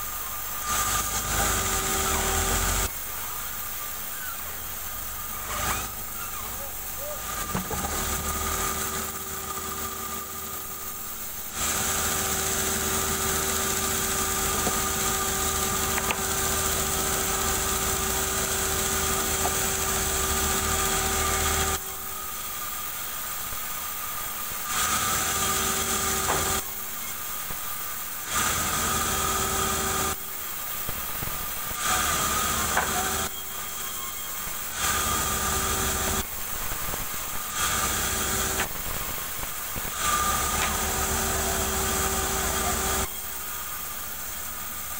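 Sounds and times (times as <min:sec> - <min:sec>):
sawmill machine humming: 0:00.0 - 0:44.9
band saw blade cutting wood: 0:11.5 - 0:21.9, 0:24.7 - 0:26.7, 0:31.8 - 0:33.4, 0:37.6 - 0:39.0, 0:39.8 - 0:43.2.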